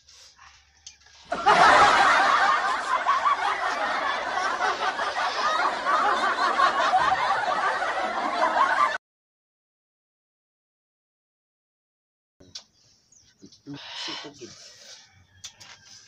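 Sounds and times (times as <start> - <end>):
laugh track: 1.3 - 9.0.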